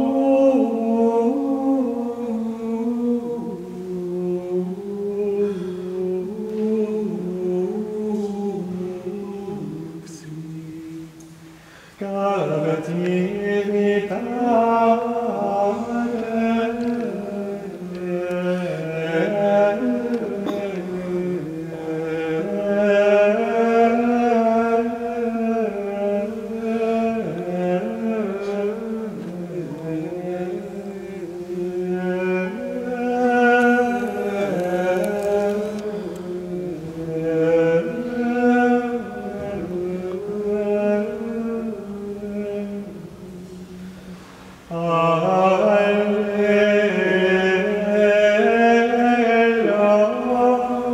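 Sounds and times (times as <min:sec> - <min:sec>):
man singing plainchant: 0:00.0 - 0:43.9, 0:44.7 - 0:50.9.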